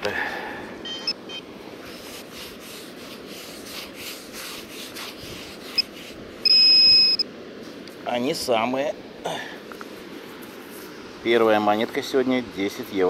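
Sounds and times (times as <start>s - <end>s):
metal detector beep: 0.8s - 1.4s, 5.7s - 7.3s
sand being scraped and dug: 1.8s - 6.7s.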